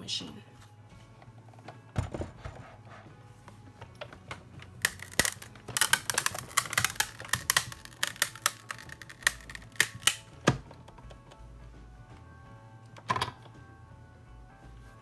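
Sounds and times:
die-cutting machine clicks and cracks: 0:04.8 - 0:10.6.

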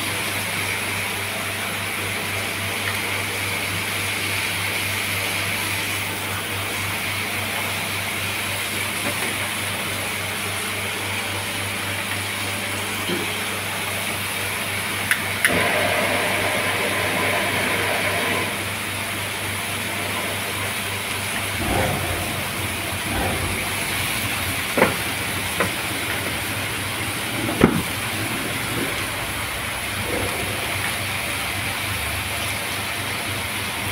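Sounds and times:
low hum: 0:21.4 - 0:26.2
sharp clicks and knocks: 0:21.6 - 0:26.4.

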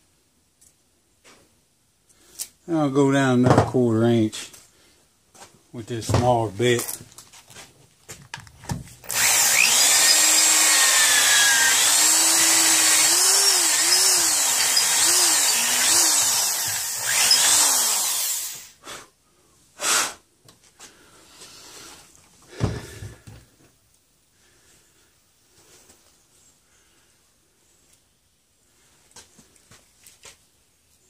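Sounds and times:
knock: 0:03.4 - 0:03.7
electric drill boring into wood: 0:09.0 - 0:18.7.

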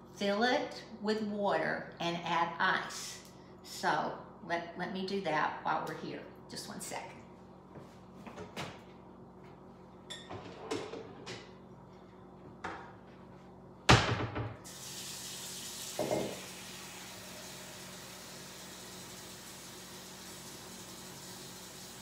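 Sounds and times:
tap water filling a bowl: 0:14.7 - 0:22.0.

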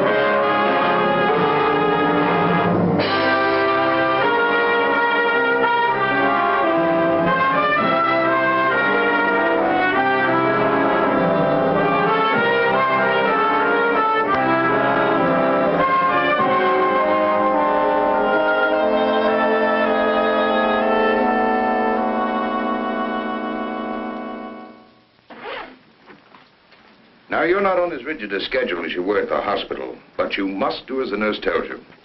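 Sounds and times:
orchestral music led by brass: 0:00.0 - 0:24.9.

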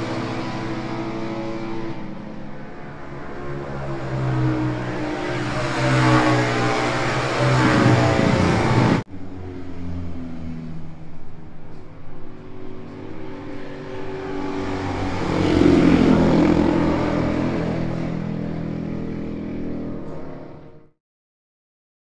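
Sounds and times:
motorcycle engine revving: 0:00.0 - 0:20.9.

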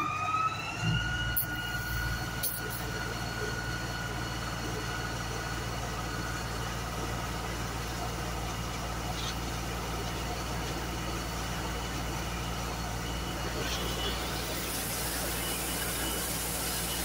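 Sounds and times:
engine and pump drone: 0:00.0 - 0:17.0
water jet hissing: 0:13.4 - 0:17.0.

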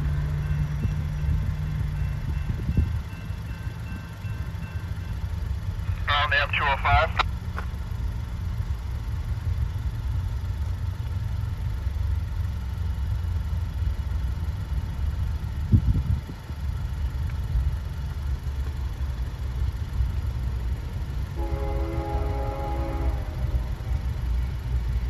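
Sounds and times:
low engine rumble: 0:00.0 - 0:25.0.

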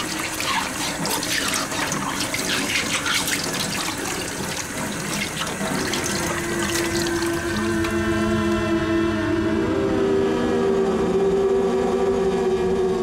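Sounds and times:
tap water running and splashing: 0:00.0 - 0:08.1.

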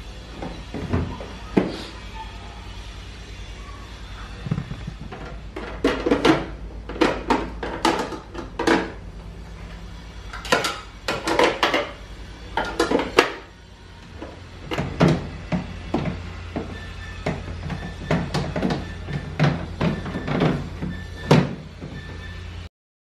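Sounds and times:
fridge shelves clattering: 0:04.4 - 0:09.0, 0:14.2 - 0:22.2.

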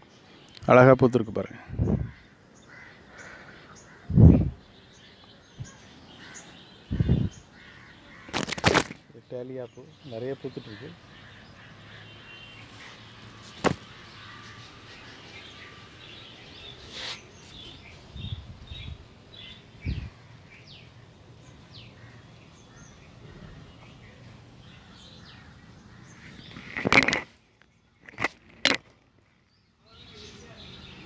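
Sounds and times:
small birds chirping: 0:00.0 - 0:31.0.

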